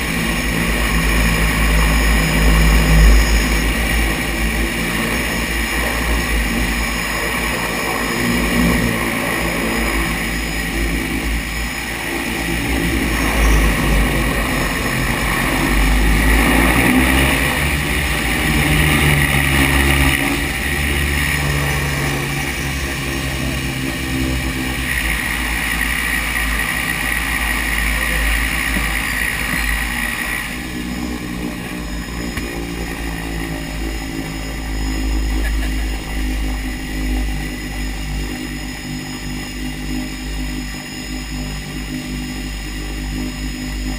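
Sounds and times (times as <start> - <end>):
turboprop engine drone with whine: 0.0 - 43.9.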